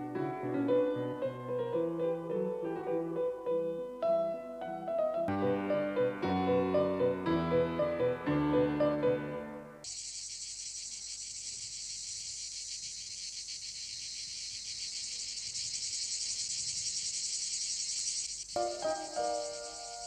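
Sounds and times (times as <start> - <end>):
piano phrase: 0.0 - 9.8
insects chirring: 9.8 - 20.0.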